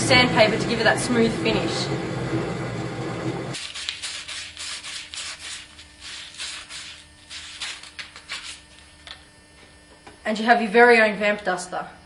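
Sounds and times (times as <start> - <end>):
loud steady noise: 0.0 - 3.6
sandpaper rubbing on wood: 3.6 - 8.7.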